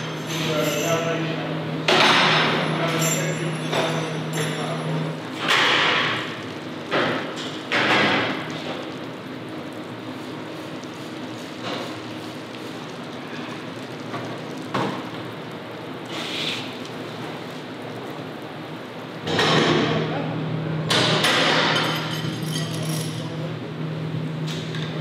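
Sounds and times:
hiss and hum of machinery: 0:15.9 - 0:25.0
hiss: 0:16.1 - 0:16.7.

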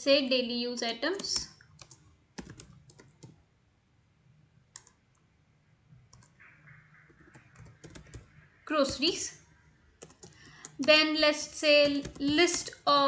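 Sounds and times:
computer keyboard typing: 0:01.2 - 0:03.4, 0:04.7 - 0:05.2, 0:06.1 - 0:06.4, 0:07.0 - 0:09.2, 0:10.0 - 0:12.8.

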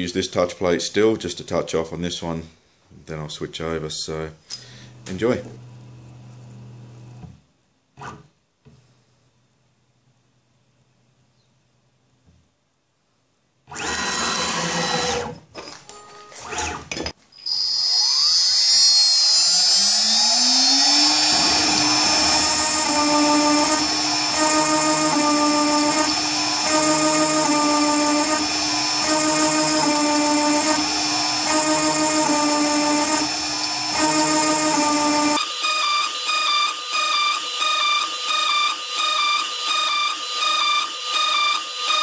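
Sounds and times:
router spindle whine: 0:13.7 - 0:15.3, 0:17.4 - 0:42.0
endmill milling metal: 0:18.6 - 0:42.0.

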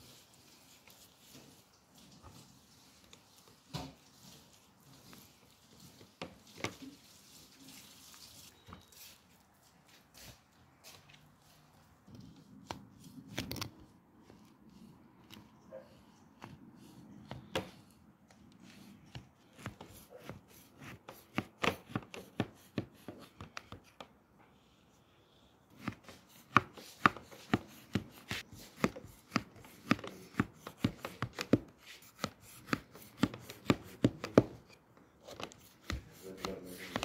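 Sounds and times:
knife tapping through pastry: 0:16.4 - 0:24.1, 0:25.7 - 0:37.0.

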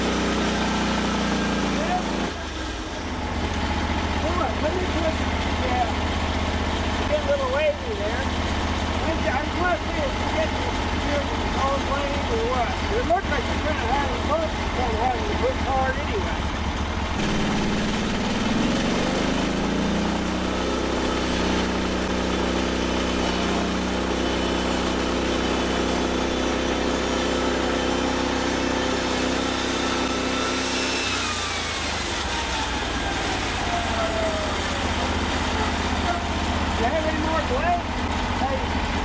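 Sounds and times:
sawmill engine revving: 0:00.0 - 0:39.0
band blade sawing through log: 0:17.1 - 0:36.8.

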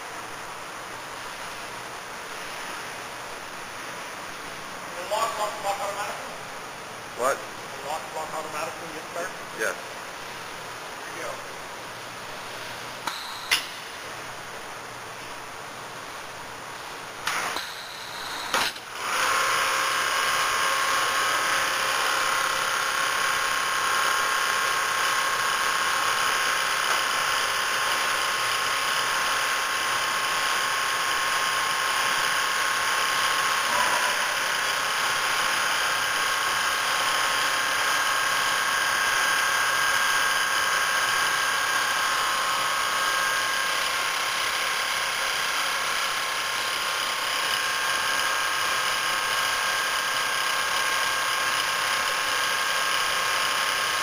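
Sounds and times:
sewing machine motor whine: 0:17.3 - 0:54.0.

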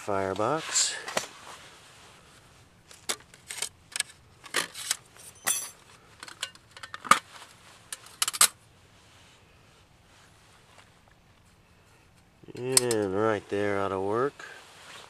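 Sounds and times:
metal camp stove panels clicking: 0:12.5 - 0:13.1.

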